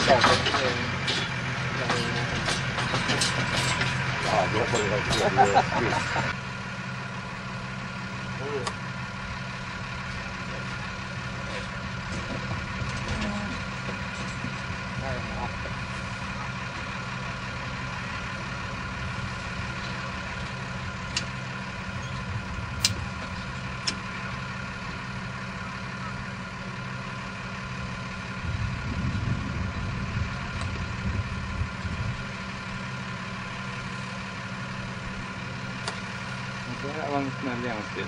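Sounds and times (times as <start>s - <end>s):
sharp metallic clanks: 0.0s - 6.3s
low knocking and rumbling: 0.0s - 6.4s
vehicle engine idling: 0.0s - 38.0s.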